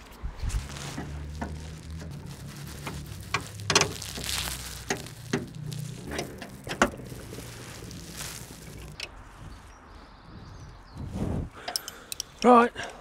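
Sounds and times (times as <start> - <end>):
small clicks and knocks: 0.9 - 7.7, 11.6 - 13.0.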